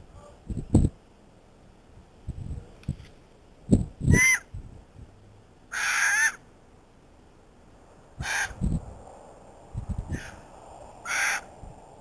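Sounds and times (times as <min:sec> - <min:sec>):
bird harsh calls: 0:04.1 - 0:04.5, 0:05.7 - 0:06.4, 0:08.2 - 0:08.6, 0:10.1 - 0:11.5.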